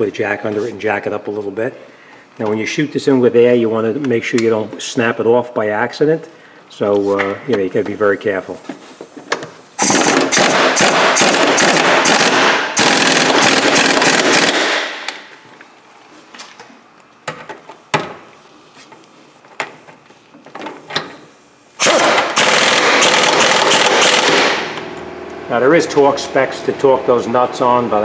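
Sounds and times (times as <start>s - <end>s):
pneumatic impact wrench hammering: 9.3s - 15.2s, 20.9s - 24.8s.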